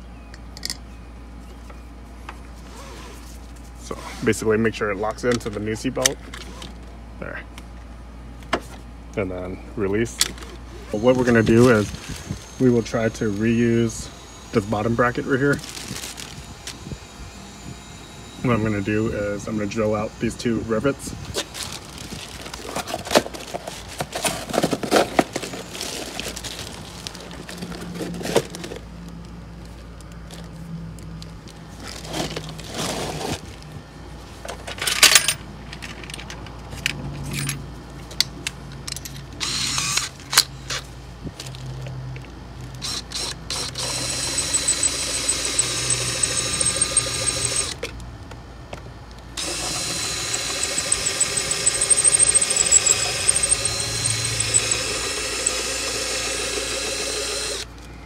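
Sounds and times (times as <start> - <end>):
cordless drill whining: 10.4 - 20.2, 39.4 - 40.1, 42.8 - 47.8, 49.4 - 57.7.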